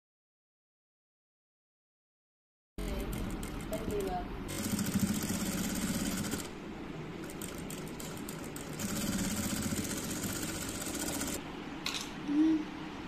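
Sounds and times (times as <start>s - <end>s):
sewing machine stitching: 2.8s - 6.5s, 7.2s - 11.4s.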